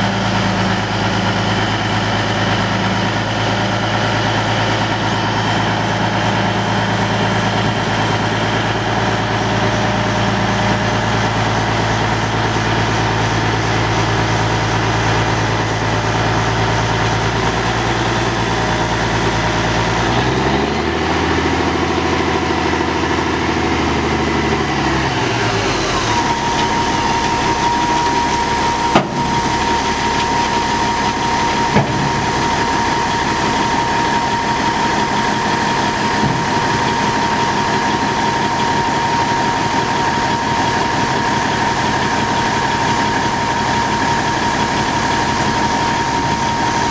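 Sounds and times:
diesel truck engine idling: 0.0s - 46.9s
high whine: 24.8s - 46.9s.

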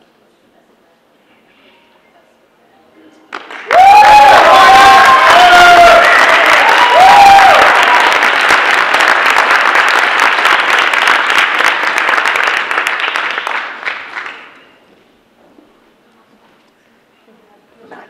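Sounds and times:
audience applauding: 3.3s - 14.6s.

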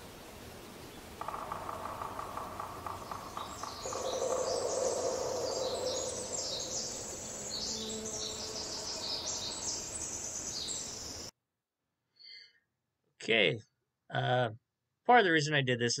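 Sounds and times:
small birds chirping: 0.0s - 11.3s
woodpecker drumming on wood: 1.2s - 9.1s.

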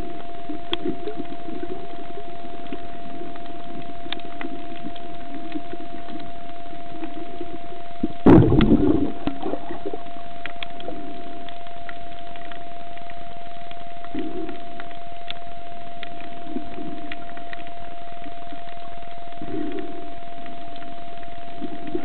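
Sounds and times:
muffled underwater murmur: 0.0s - 22.0s
small clicks: 0.4s - 22.0s
loud burst of noise: 8.3s - 9.3s.

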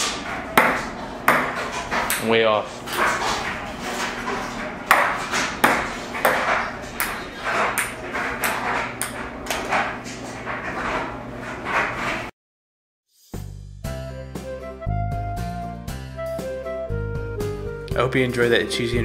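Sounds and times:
ping pong ball bouncing: 0.6s - 2.3s, 4.9s - 9.2s.

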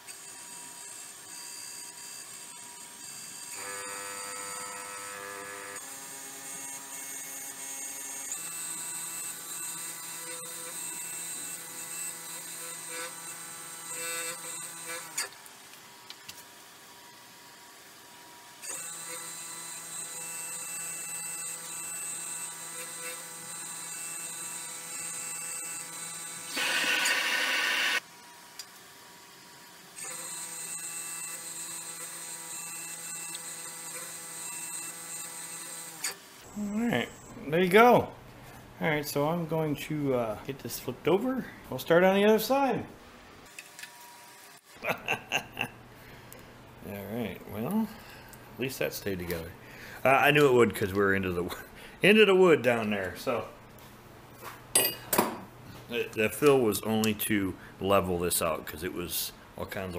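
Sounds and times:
lathe motor whining: 18.7s - 28.0s.

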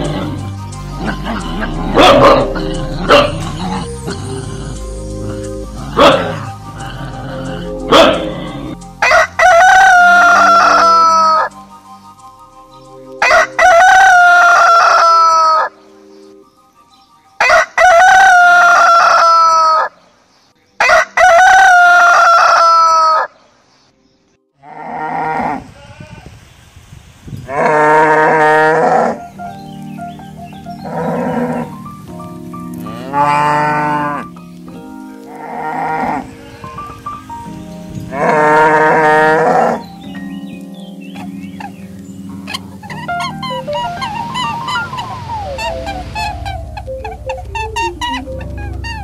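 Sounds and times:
roosters crowing: 0.0s - 4.8s, 5.7s - 11.6s, 13.2s - 15.8s, 17.4s - 20.0s, 20.8s - 23.4s, 27.5s - 29.2s, 32.9s - 34.4s, 35.2s - 36.7s, 38.1s - 40.1s, 41.2s - 49.0s.

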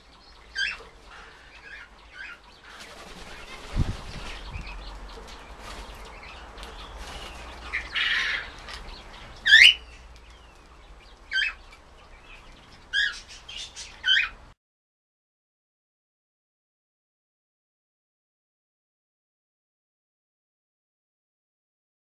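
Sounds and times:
finch calls: 0.0s - 14.5s.

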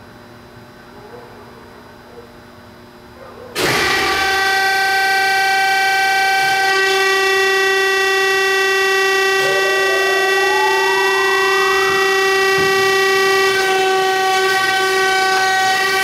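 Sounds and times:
faint hum: 0.0s - 4.1s, 6.2s - 16.0s
grinder motor whining: 3.6s - 16.0s.

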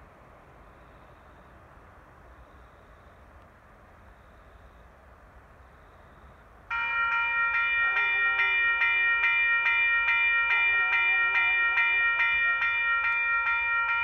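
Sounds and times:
level crossing warning bell ringing: 6.7s - 14.0s.

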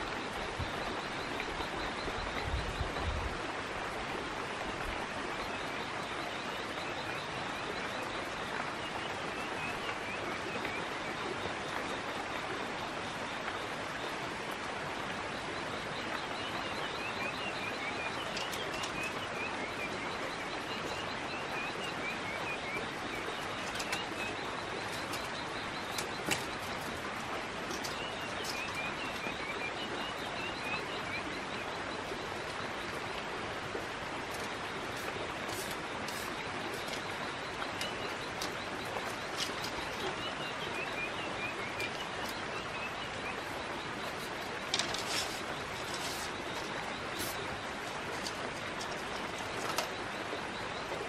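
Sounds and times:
bird chirps: 34.3s - 51.0s.

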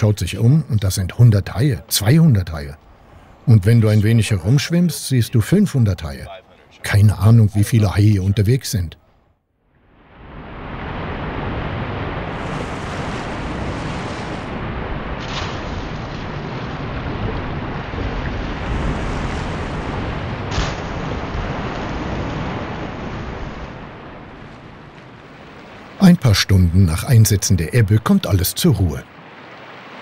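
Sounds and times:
waves breaking: 0.0s - 8.9s, 9.8s - 30.0s
water splashes: 10.2s - 30.0s.

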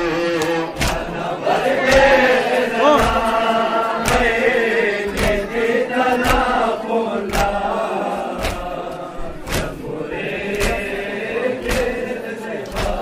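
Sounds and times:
men chanting in unison: 0.0s - 13.0s
rhythmic chest-beating thumps: 0.0s - 13.0s.

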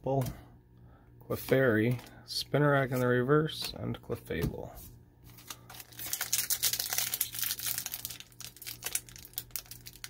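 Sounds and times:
foil wrapper crinkling: 5.3s - 10.0s.

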